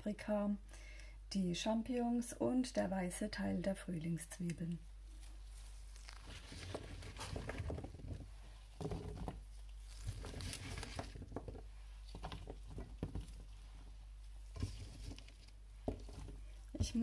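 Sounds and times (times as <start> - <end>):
gloved hands rustling: 4.8 - 17.0.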